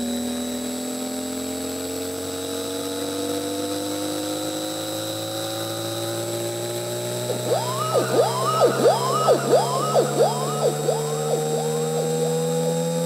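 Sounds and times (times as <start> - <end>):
swooping synth pitch sweeps: 7.2 - 13.0
synth drone: 7.3 - 13.0.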